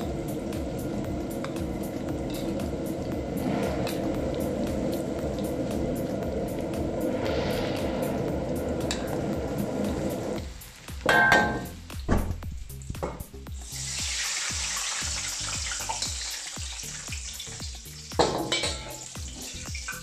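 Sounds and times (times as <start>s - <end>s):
chicken deep-frying in oil: 0.0s - 20.0s
strong sizzling hiss: 0.0s - 20.0s
metal ladle clanking on wok: 11.1s - 11.7s, 18.2s - 19.1s.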